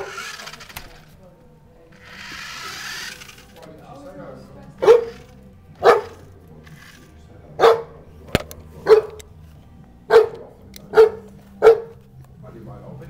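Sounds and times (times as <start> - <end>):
dog barking: 4.8 - 6.3, 7.6 - 8.0, 8.8 - 9.2, 10.1 - 12.0.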